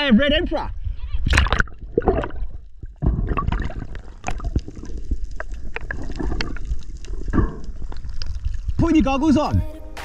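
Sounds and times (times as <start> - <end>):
water sloshing and gurgling: 0.8 - 9.6.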